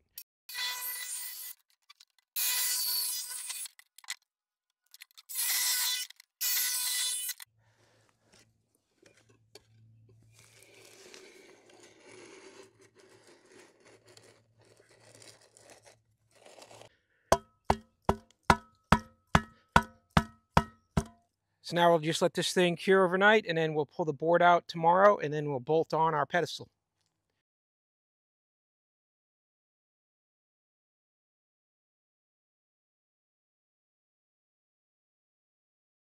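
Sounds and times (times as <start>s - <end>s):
jigsaw cutting board: 5.2s - 7.4s, 10.4s - 16.9s
tool handle tapping board: 17.3s - 21.2s.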